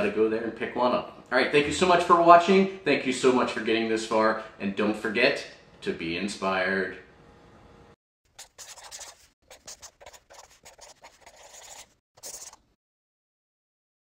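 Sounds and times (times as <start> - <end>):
pen scratching while writing: 8.3 - 12.7.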